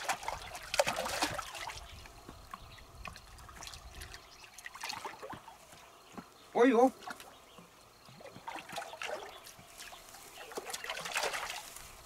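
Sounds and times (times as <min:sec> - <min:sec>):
fish splashing in water: 0:00.0 - 0:05.6, 0:08.2 - 0:12.0.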